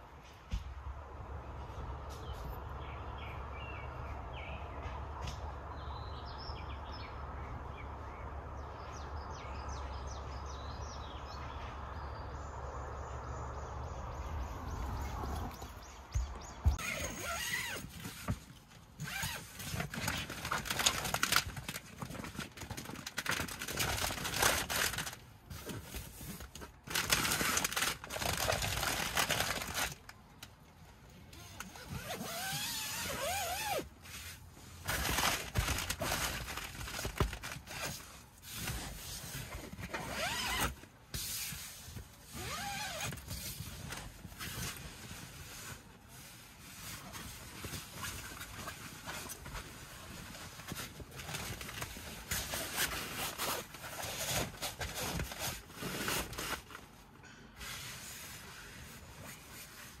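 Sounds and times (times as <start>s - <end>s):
tent fabric rustling: 15.9s - 30.1s, 31.4s - 60.0s.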